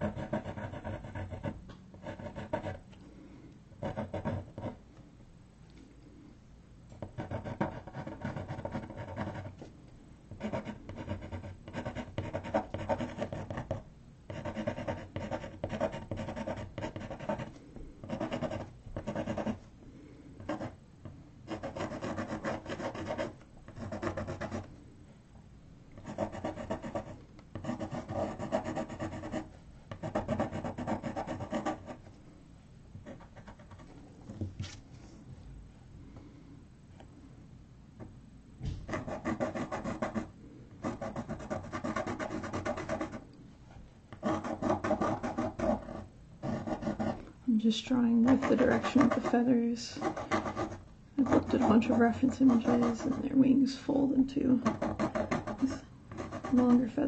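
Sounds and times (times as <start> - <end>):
pencil sketching strokes: 10.4 - 19.7, 21.5 - 24.7, 26.0 - 32.0, 48.2 - 53.6, 54.6 - 57.0.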